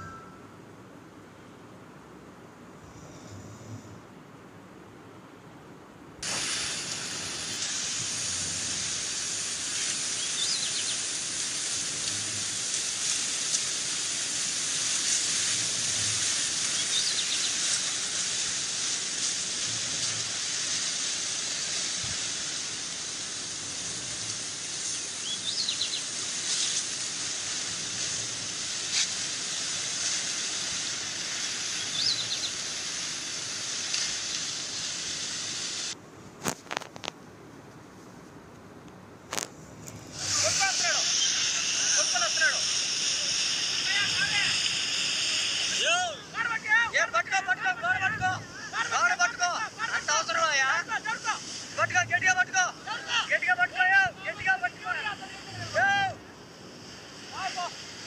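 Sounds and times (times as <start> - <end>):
floodwater rushing: 6.2 - 36.0, 40.0 - 58.0
faint bird chirps: 10.1 - 11.1, 16.7 - 17.7, 25.2 - 26.8, 31.7 - 32.7.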